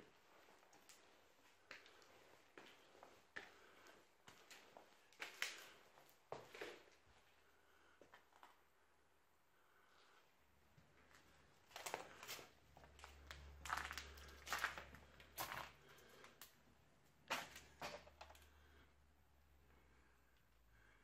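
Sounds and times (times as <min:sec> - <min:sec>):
footsteps crunching over debris: 0:11.1 - 0:16.4.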